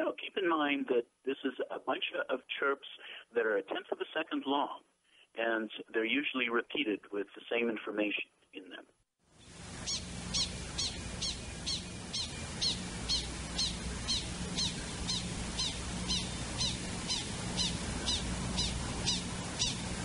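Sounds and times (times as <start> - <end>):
low steady hum: 9.4 - 20.0
prairie dog alarm chirps: 9.8 - 19.9.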